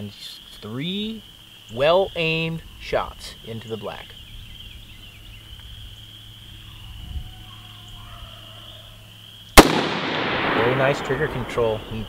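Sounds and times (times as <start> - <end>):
rifle shot: 9.6 - 11.9.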